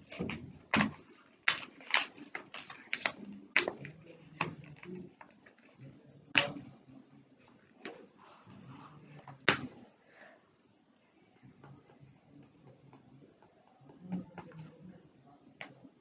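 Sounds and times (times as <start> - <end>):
paper being folded: 0.0 - 6.5.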